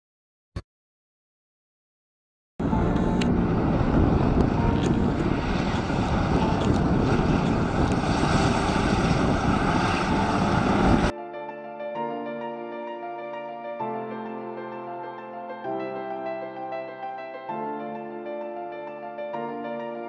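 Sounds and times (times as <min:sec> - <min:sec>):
tracked vehicle engine and tracks: 0:02.6 - 0:11.1
wind on microphone: 0:02.6 - 0:11.1.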